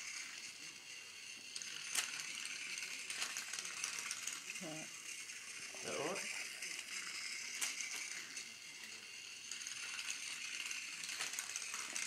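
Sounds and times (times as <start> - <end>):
toy train motor whirring: 0.0 - 12.0.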